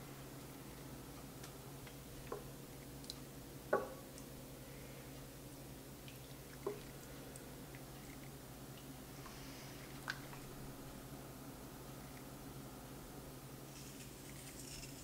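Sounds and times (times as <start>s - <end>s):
faint steady hum: 0.0s - 15.0s
soft wet knocks on pot: 3.7s - 4.0s.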